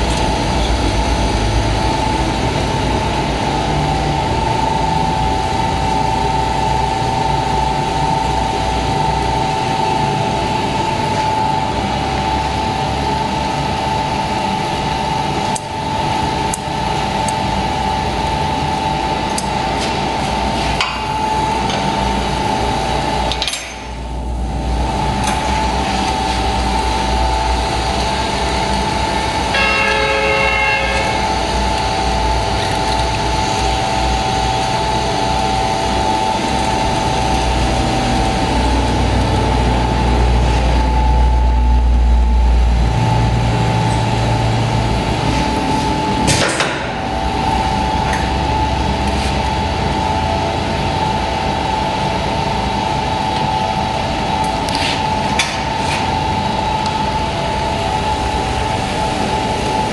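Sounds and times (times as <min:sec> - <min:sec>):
machine drone with whine: 0:00.0 - 0:59.9
short high-pitched tone: 0:29.5 - 0:31.4.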